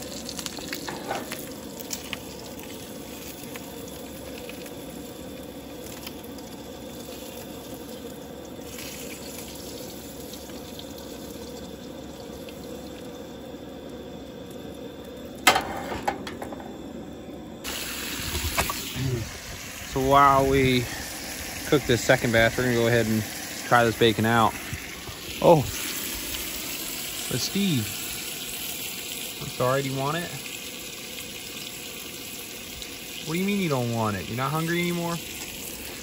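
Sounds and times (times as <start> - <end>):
stove burner hissing: 0.0 - 36.0
frying pan clanking on grate: 0.8 - 1.4, 15.4 - 16.7.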